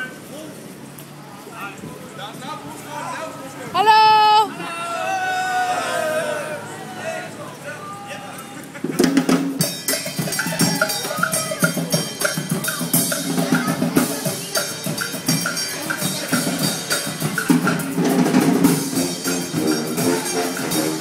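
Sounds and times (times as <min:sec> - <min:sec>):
snare and bass drum beat: 0:08.9 - 0:21.0
trombones and tuba: 0:14.9 - 0:21.0.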